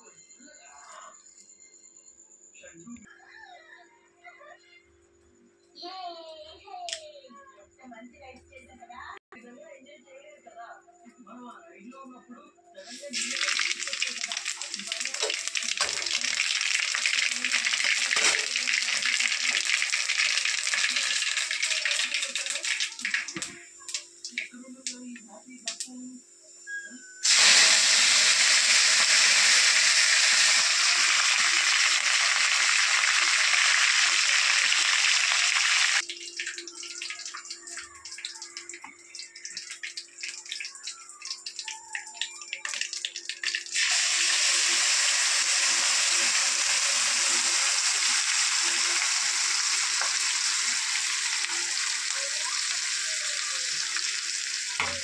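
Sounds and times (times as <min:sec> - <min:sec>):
food sizzling in hot oil: 0:12.8 - 0:24.5, 0:27.2 - 0:55.0.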